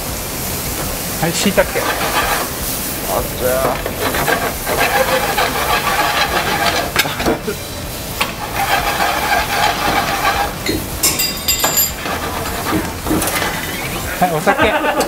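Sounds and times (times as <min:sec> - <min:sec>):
food sizzling in frying pan: 0:00.0 - 0:15.0
short high clink: 0:11.0 - 0:12.0.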